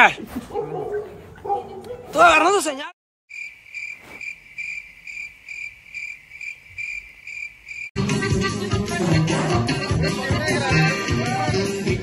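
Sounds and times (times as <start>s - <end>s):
cricket chirping: 3.3s - 8.0s.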